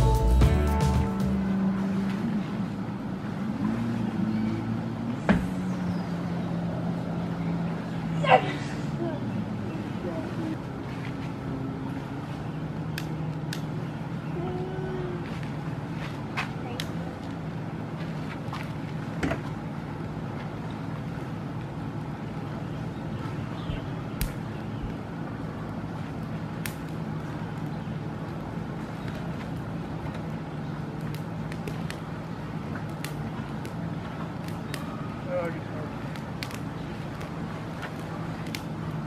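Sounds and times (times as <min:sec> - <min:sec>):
steady low hum: 0:00.0 - 0:39.0
campfire crackling and popping: 0:12.8 - 0:13.9, 0:15.4 - 0:39.0.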